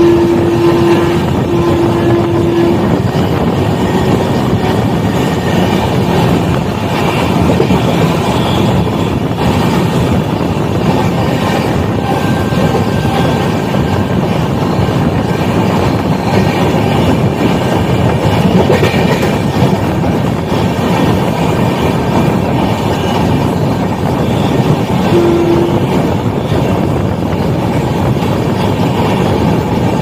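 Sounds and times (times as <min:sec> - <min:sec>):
train wheels on rails: 0:00.0 - 0:30.0
short steady tone: 0:25.1 - 0:25.9.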